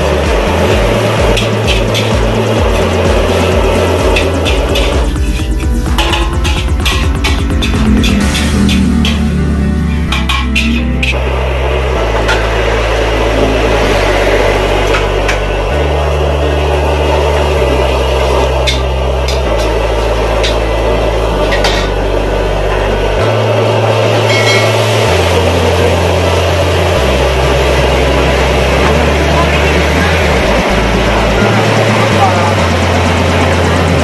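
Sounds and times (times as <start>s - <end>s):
liquid hissing in hot wok: 0.0s - 6.6s, 11.2s - 29.3s
food sizzling in wok: 0.0s - 34.0s
gas burner noise: 0.0s - 34.0s
metal ladle scraping wok: 0.9s - 15.6s, 18.1s - 22.0s, 24.0s - 25.0s.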